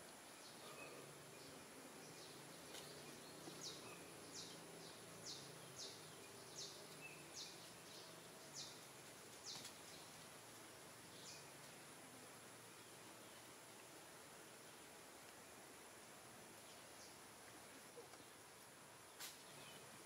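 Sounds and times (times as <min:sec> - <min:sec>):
soft steady hiss: 0:00.0 - 0:20.0
faint high chirp: 0:00.4 - 0:01.6.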